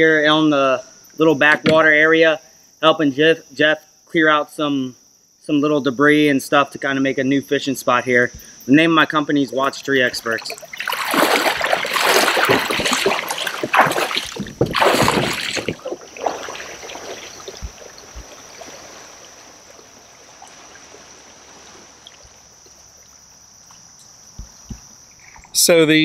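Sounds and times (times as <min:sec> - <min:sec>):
high insect drone: 0:00.0 - 0:26.0
water splashing around legs: 0:10.0 - 0:25.6.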